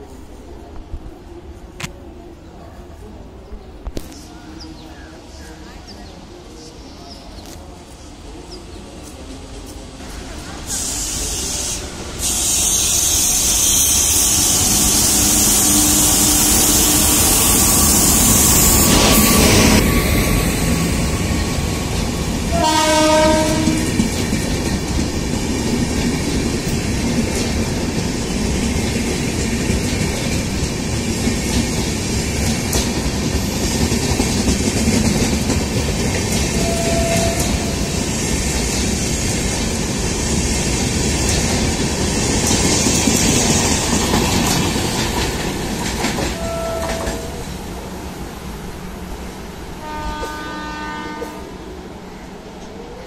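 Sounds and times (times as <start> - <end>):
train wheels rumbling on rails: 3.0 - 53.0
train horn blast: 13.6 - 19.8, 22.5 - 24.0, 36.6 - 38.0, 46.4 - 47.4, 49.8 - 51.6.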